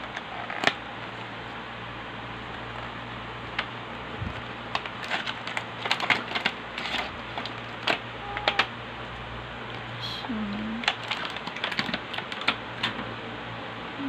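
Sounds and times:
packaging clicks and scrapes: 4.4s - 8.7s, 10.8s - 13.0s.

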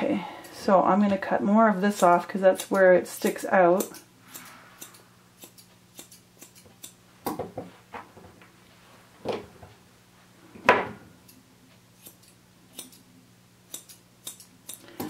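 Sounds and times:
scissors snipping dog hair: 1.9s - 7.0s, 12.0s - 13.1s, 13.7s - 15.0s.

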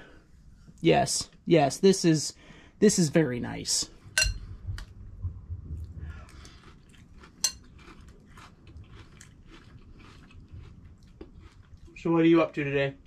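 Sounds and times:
cutlery clicking against a dish: 4.2s - 4.4s
chewing: 5.8s - 12.1s.

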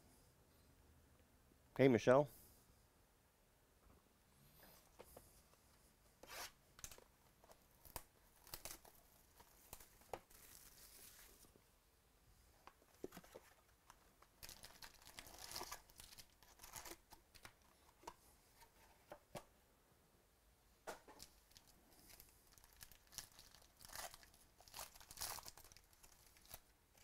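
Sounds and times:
plastic wrap tearing and crinkling: 7.7s - 11.5s, 13.2s - 17.5s, 21.2s - 27.0s.

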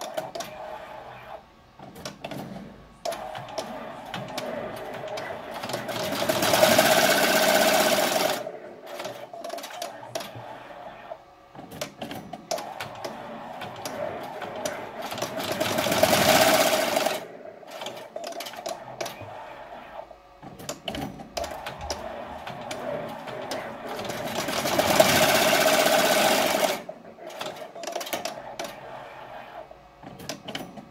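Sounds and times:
embroidery machine stitching: 3.1s - 9.8s, 12.5s - 18.6s, 21.4s - 28.8s
machine clicking: 20.5s - 28.9s.

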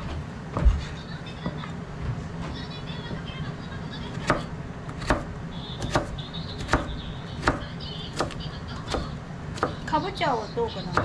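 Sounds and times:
knife chopping on plastic board: 4.2s - 9.9s.

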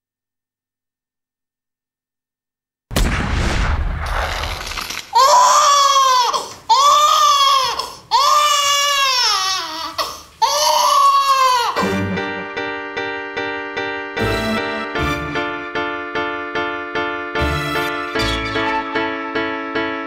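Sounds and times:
baby crying: 5.1s - 12.0s.

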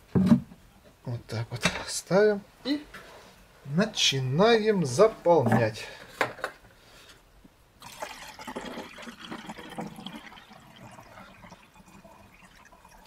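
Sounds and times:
water pouring into plastic reservoir: 7.8s - 13.0s.

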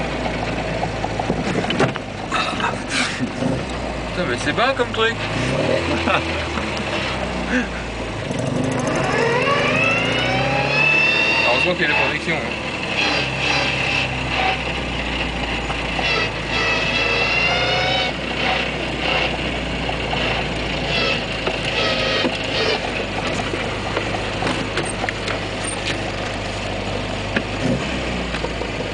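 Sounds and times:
car engine idling: 0.0s - 28.9s
short high-pitched squeal: 16.0s - 19.4s, 20.3s - 22.8s.

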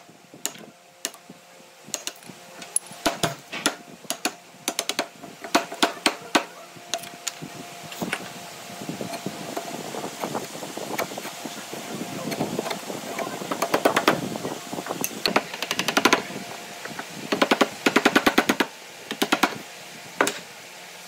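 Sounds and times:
chisel taps and clicks: 1.9s - 2.2s, 3.0s - 7.1s.

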